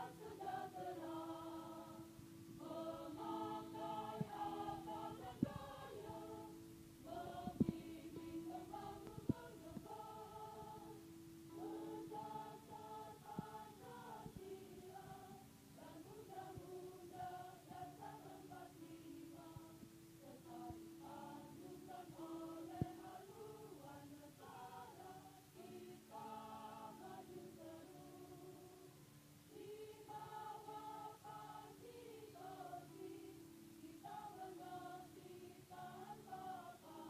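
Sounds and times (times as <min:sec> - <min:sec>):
women's choir singing a march: 0:00.0 - 0:37.0.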